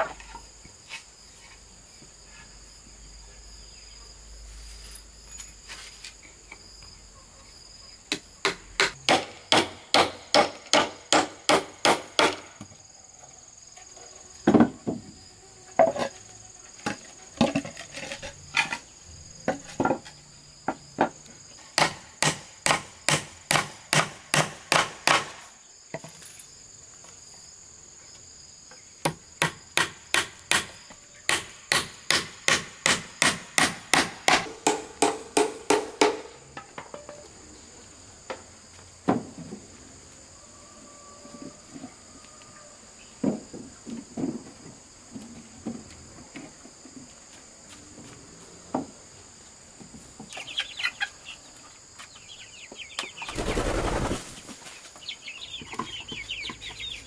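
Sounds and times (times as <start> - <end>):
high insect buzz: 0.0 - 23.2, 46.8 - 55.5
hammer striking wood: 8.1 - 12.5, 21.8 - 25.4, 29.0 - 30.7, 31.3 - 36.3.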